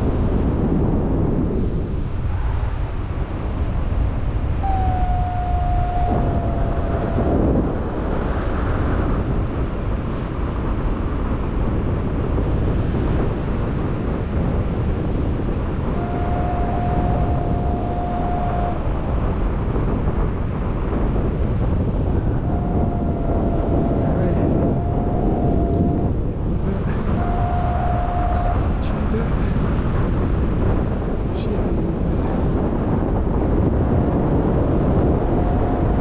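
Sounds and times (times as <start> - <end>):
wind buffeting microphone: 0.0 - 36.0
long steady tone: 4.5 - 9.2, 15.5 - 20.3, 21.8 - 30.2, 33.6 - 36.0.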